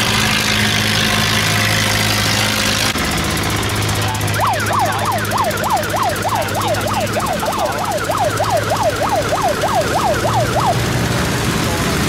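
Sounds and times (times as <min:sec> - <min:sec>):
boat engines droning: 0:00.0 - 0:12.0
electronic siren yelping: 0:04.2 - 0:11.0.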